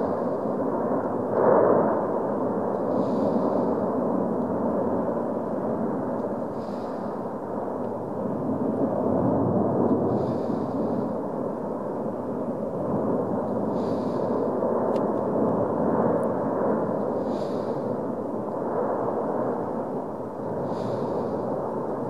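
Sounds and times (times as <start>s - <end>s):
volcano vent roaring: 0.0s - 22.0s
high hiss: 6.5s - 7.3s, 13.7s - 14.4s, 20.6s - 21.5s.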